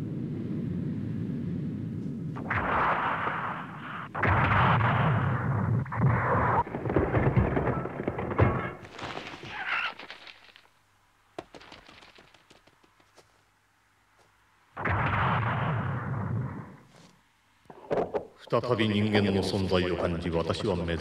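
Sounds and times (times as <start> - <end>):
explosion roar: 2.4 - 8.8
sharp crashes: 2.4 - 10.8, 11.4 - 13.2, 14.8 - 16.9.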